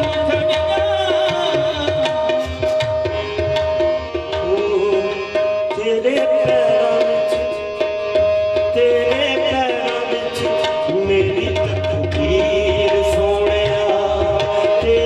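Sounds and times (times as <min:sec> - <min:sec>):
harmonium notes: 0:00.0 - 0:15.0
tabla strokes: 0:00.0 - 0:15.0.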